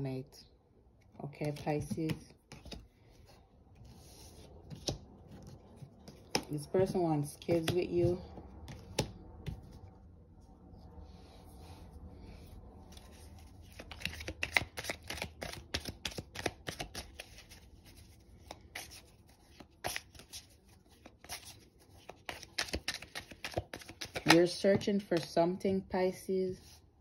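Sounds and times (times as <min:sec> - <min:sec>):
cards being shuffled: 0:01.4 - 0:03.0, 0:03.8 - 0:09.9, 0:12.9 - 0:25.3.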